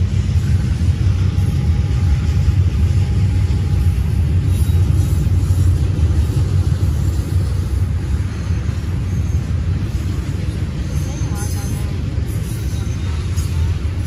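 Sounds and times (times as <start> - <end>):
freight train rolling on rails: 0.0 - 14.0.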